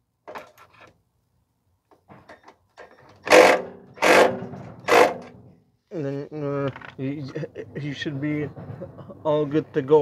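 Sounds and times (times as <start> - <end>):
loud metal clanks: 3.2 - 5.5.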